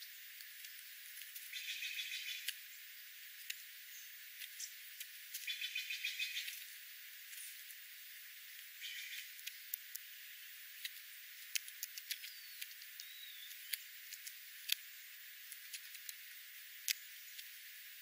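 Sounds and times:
faint hiss: 0:00.0 - 0:18.0
birds pecking seed on gravel: 0:00.3 - 0:18.0
faint high bird chirps: 0:00.8 - 0:03.1, 0:03.8 - 0:04.8, 0:05.4 - 0:06.7, 0:08.8 - 0:09.8, 0:12.0 - 0:13.9.

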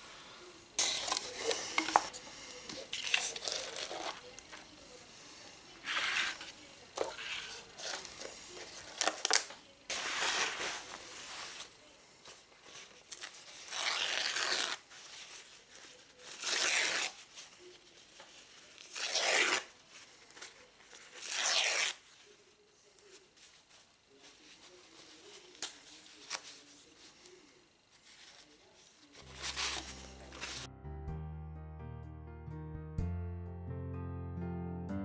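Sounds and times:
paper towel ripping: 0:08.8 - 0:11.7, 0:13.0 - 0:17.6, 0:18.7 - 0:19.8, 0:21.0 - 0:22.1, 0:29.2 - 0:30.7.

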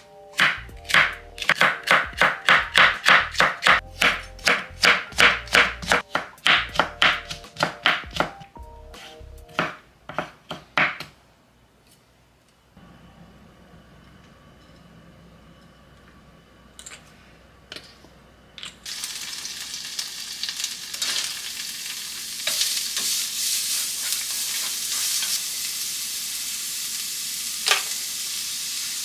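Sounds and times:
background music: 0:00.0 - 0:09.9
knife chopping on wooden board: 0:00.4 - 0:08.4, 0:09.0 - 0:11.2.

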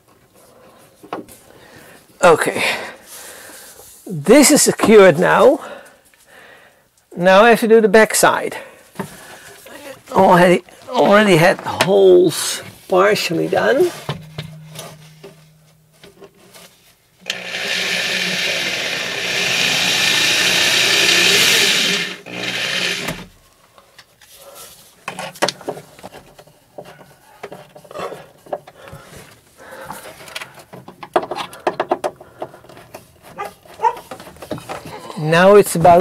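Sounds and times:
handling clicks and knocks: 0:13.6 - 0:16.6, 0:30.2 - 0:35.0
power drill running: 0:17.2 - 0:23.3.

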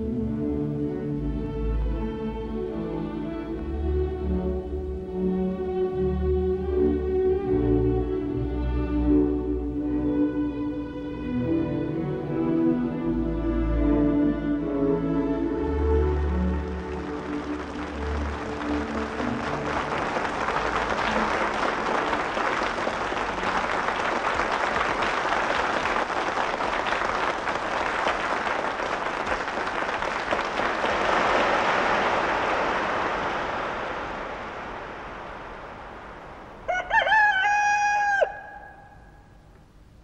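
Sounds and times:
dense even noise: 0:30.0 - 0:36.9
rooster crowing: 0:36.6 - 0:39.1.

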